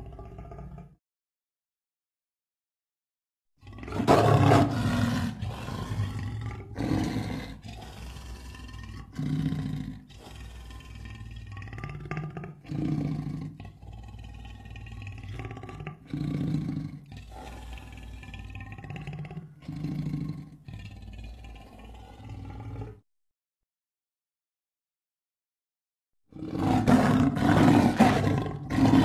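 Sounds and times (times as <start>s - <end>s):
monster roaring: 3.6s - 20.8s, 26.3s - 29.0s.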